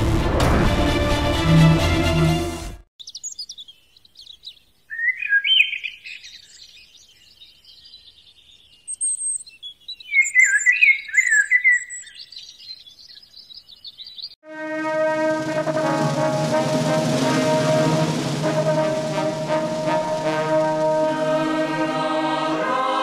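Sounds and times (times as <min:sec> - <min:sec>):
songbirds chirping: 0:03.0 - 0:14.4.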